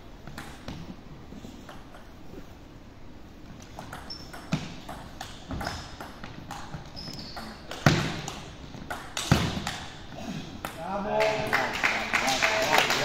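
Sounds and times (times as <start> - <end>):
shoes squeaking on wooden floor: 4.0 - 4.8, 5.4 - 8.0.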